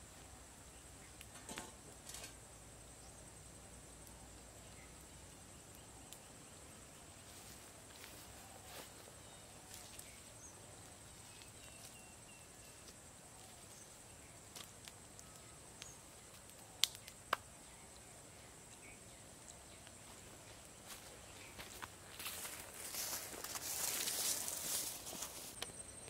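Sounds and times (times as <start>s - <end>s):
insect hum: 0.0s - 26.0s
faint bird chirps: 4.0s - 26.0s
small ticks: 14.5s - 17.5s
sharp snaps: 14.6s - 17.5s.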